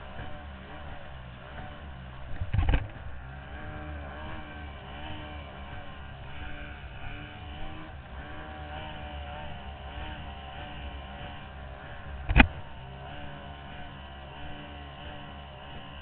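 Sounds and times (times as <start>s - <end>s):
racing outboard engine: 0.0s - 16.0s
sharp thump: 12.2s - 12.6s.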